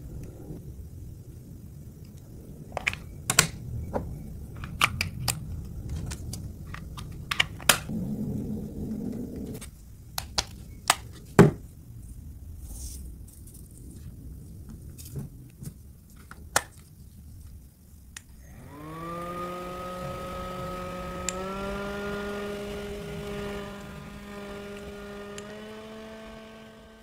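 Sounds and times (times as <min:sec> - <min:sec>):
mini fan motor whine: 0:18.3 - 0:27.0
fan switch click: 0:21.2 - 0:21.6.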